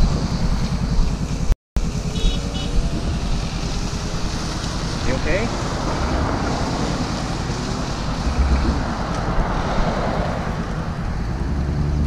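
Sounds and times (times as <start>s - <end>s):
motorcycle engine running: 0.0s - 5.9s
wind rumbling on microphone: 2.5s - 12.0s.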